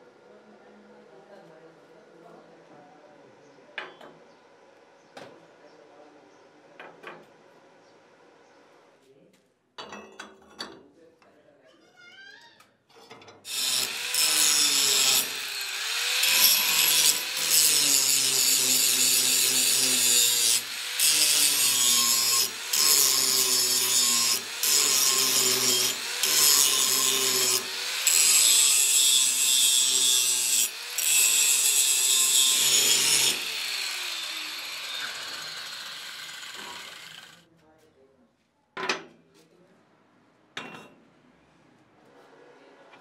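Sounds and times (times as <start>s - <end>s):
angle grinder grinding steel: 13.5s - 37.4s
grinder spinning down whine: 33.3s - 37.4s.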